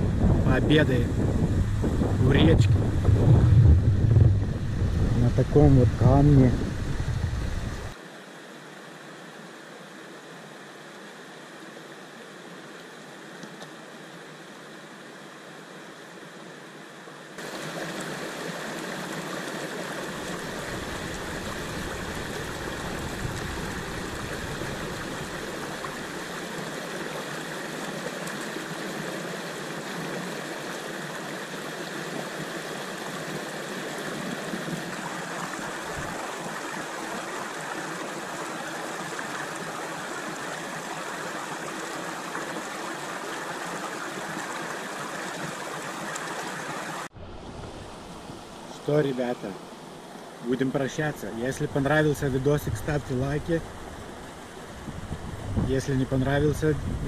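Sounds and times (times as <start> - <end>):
river splashing over boulders: 17.4 - 57.0.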